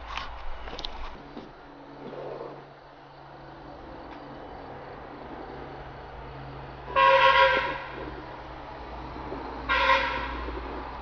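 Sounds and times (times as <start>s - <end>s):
steady low hum: 0.0s - 11.0s
horn honks: 6.8s - 8.4s, 9.0s - 10.9s.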